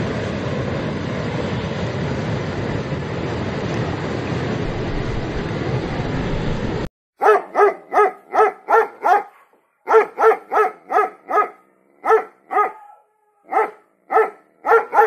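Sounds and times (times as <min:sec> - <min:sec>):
animal barking calls: 0:07.2 - 0:15.0.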